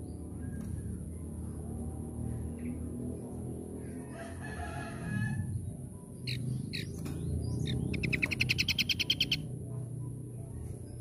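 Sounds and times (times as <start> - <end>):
fast loud bird trill: 7.6 - 9.5.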